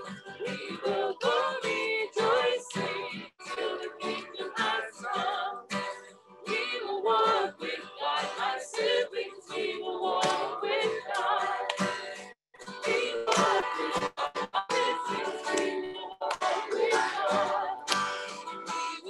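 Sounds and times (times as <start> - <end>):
acoustic guitar: 0.0 - 19.0
person singing a hymn: 12.8 - 17.9.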